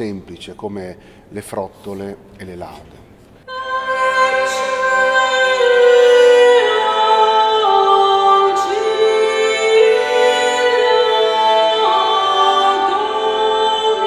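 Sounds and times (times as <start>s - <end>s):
woman singing: 3.5s - 14.0s.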